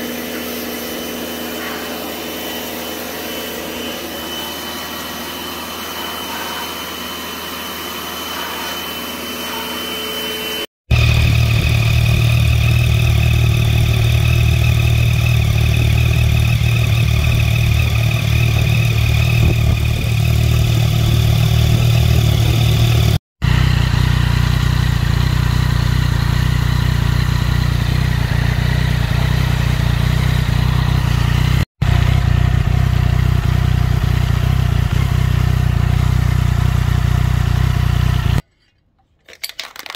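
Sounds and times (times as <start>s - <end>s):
motorcycle engine idling: 10.9s - 38.4s.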